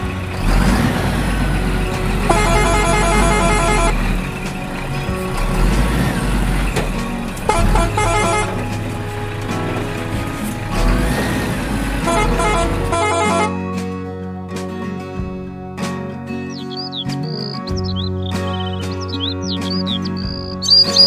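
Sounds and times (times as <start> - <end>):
rapid horn honking: 0.0 - 13.7
truck engine rumbling: 0.0 - 14.0, 14.6 - 21.0
music: 0.0 - 21.0.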